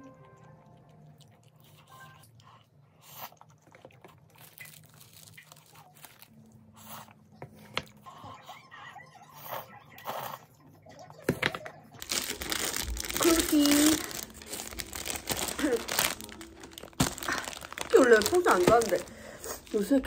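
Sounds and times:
person chewing and crunching food: 0.0s - 10.8s, 11.9s - 19.8s.

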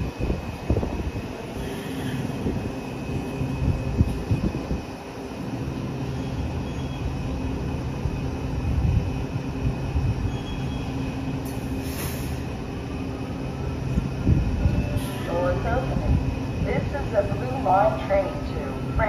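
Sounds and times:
train electric hum: 0.0s - 19.0s
short hiss: 11.5s - 12.4s.

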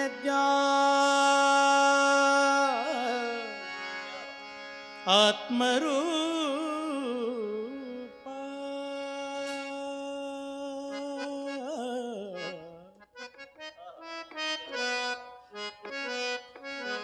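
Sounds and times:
man singing devotional song: 0.0s - 13.0s
harmonium: 0.0s - 17.0s.

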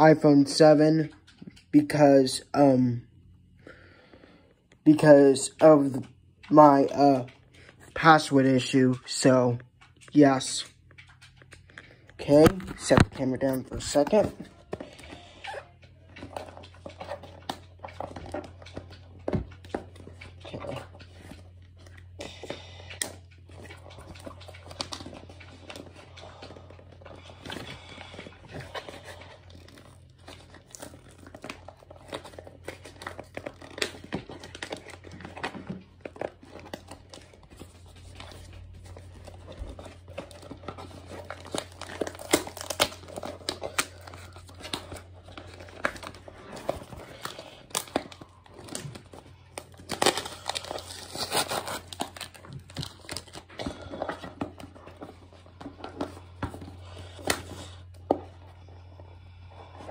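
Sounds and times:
steady low hum: 0.0s - 59.9s
packaging crinkling and tearing: 12.3s - 58.3s.

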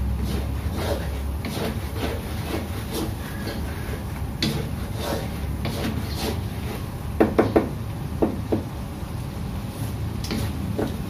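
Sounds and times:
spatula scraping sauce in wok: 0.0s - 7.0s, 10.3s - 11.0s
steady low hum: 0.0s - 11.0s
spatula knocking on pan: 7.2s - 8.7s.

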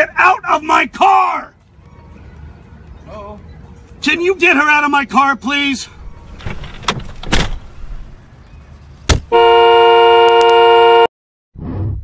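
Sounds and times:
sharp thump: 9.1s - 9.3s
car horn blaring: 9.3s - 11.1s.

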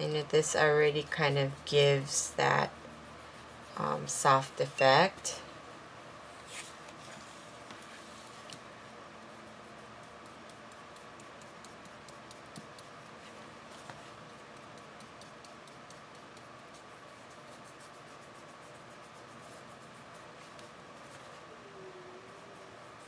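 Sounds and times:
paintbrush scratching on card: 0.0s - 5.1s, 9.2s - 21.4s
background hiss: 0.0s - 23.0s.

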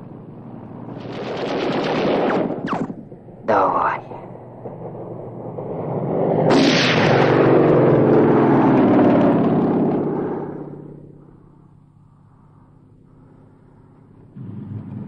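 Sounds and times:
propeller aircraft engine passing: 0.0s - 15.0s
sharp crack: 6.5s - 9.7s.

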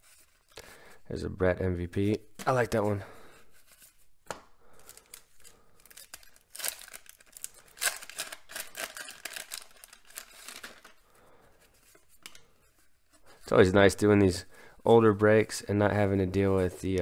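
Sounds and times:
paper wrapper crinkling and tearing: 4.8s - 11.1s.

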